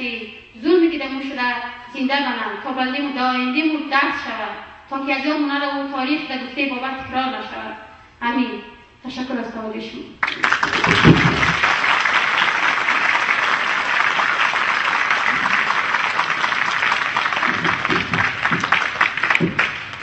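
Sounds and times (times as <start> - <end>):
audience applauding: 10.2 - 20.0.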